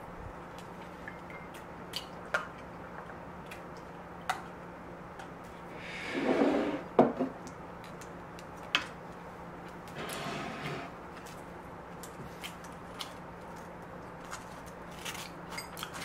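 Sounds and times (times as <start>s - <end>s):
wooden bowl scraping across table: 5.8s - 6.9s, 10.0s - 10.9s.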